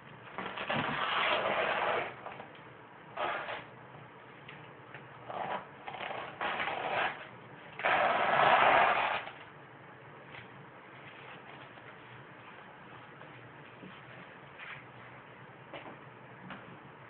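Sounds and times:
tool scraping canvas: 0.4 - 2.4, 3.2 - 3.7, 5.2 - 9.4.

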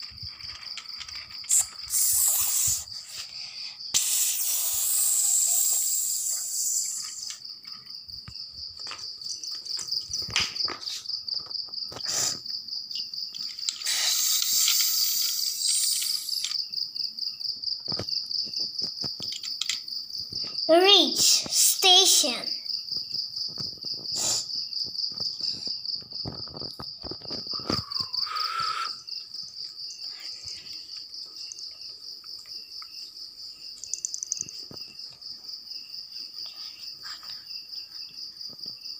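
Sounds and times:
toy train clicking: 0.0 - 3.4, 4.0 - 7.4, 13.3 - 16.6
bursts of hiss: 1.5 - 7.3, 13.8 - 16.4.

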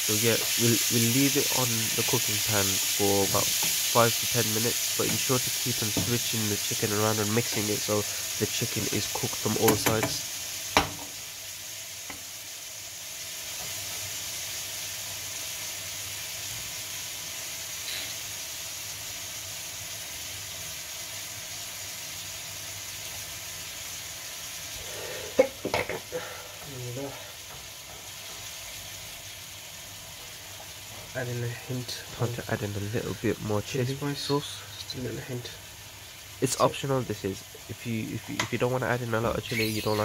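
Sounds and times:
chicken sizzling in a frying pan: 0.0 - 40.0.

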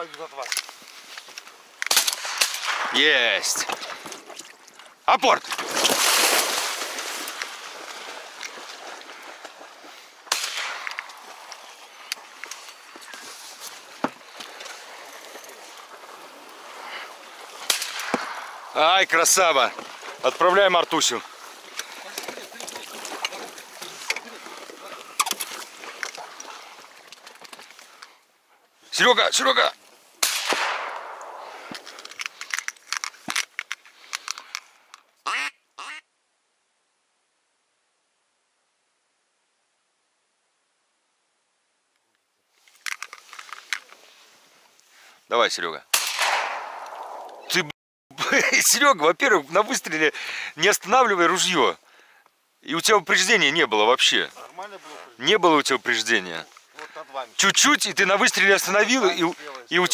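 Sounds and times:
shotgun blast echoing: 1.9 - 3.2, 10.3 - 11.2, 17.6 - 18.8, 30.2 - 31.8, 45.9 - 47.5
loud splash: 5.4 - 8.9
dog splashing in water: 5.5 - 9.8
duck quacks: 35.2 - 36.0.

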